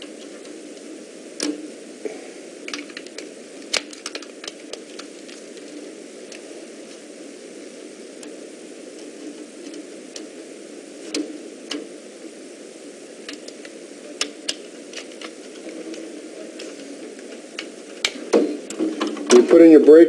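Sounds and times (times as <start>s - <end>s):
steady background hum: 0.0s - 20.0s.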